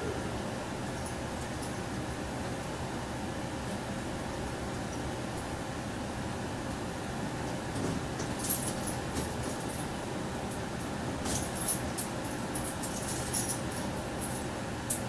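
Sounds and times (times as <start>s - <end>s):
faint hum: 0.0s - 7.4s.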